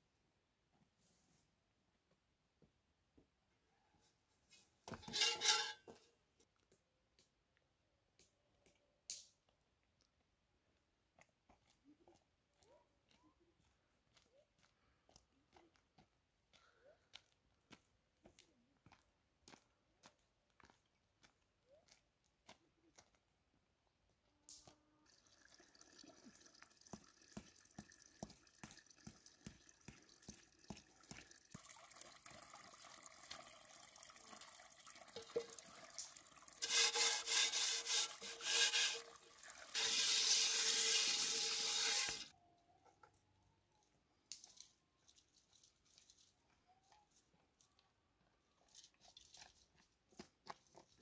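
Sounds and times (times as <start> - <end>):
faint water trickle: 24.9 - 42.3
water pouring and splashing: 25.1 - 42.3.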